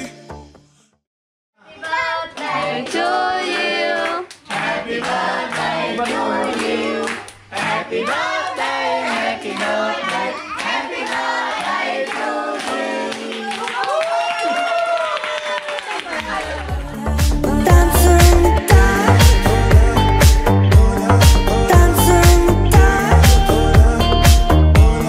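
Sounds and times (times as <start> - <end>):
group singing a celebration song: 1.6 - 13.8, 16.1 - 25.0
people clapping: 1.8 - 17.3.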